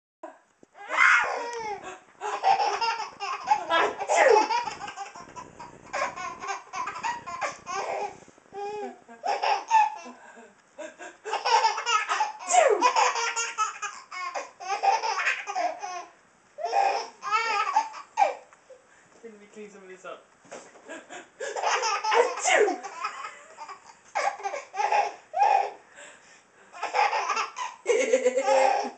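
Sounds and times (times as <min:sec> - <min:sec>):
baby laughing: 0:01.0 - 0:10.2, 0:10.8 - 0:18.5, 0:21.4 - 0:25.8, 0:26.7 - 0:28.9
fake sneezes: 0:03.8 - 0:04.4, 0:12.5 - 0:12.9, 0:22.2 - 0:22.8.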